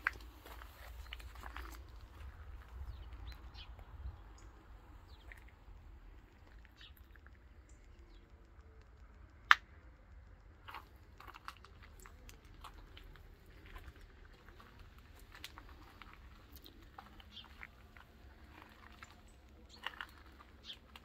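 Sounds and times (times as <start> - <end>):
footsteps on gravel: 0.0 - 3.4, 10.7 - 21.0.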